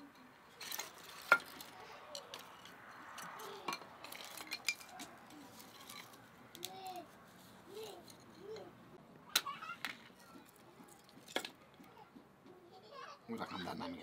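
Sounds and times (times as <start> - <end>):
dishes and utensils clinking: 0.1 - 6.2.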